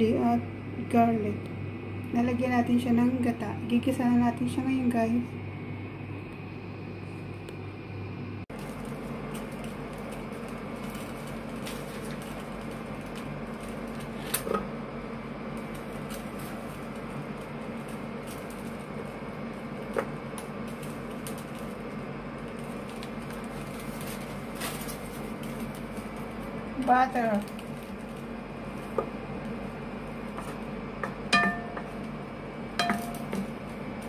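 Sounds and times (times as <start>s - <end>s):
electric cooktop humming: 0.0s - 34.0s.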